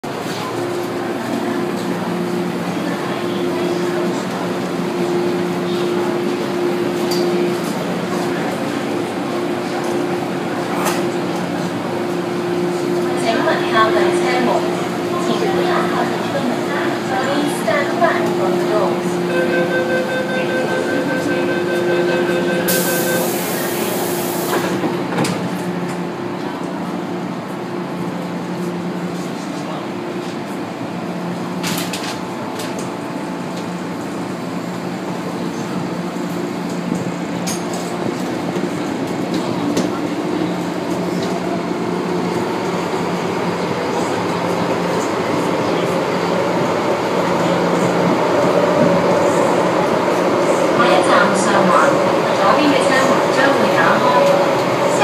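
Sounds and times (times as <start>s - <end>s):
train hum and rumble: 0.0s - 55.0s
door-closing warning tone: 19.2s - 23.6s
train doors hissing shut: 22.7s - 25.4s.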